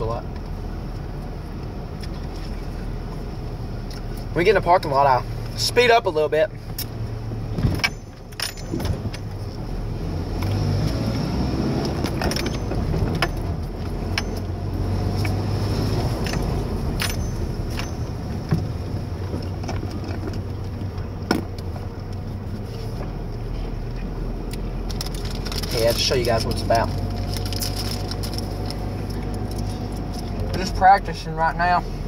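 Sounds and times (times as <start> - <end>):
truck engine hum from inside cab: 0.0 - 32.0
sharp clicks and rattles: 11.8 - 14.6, 16.0 - 22.2, 24.4 - 30.8.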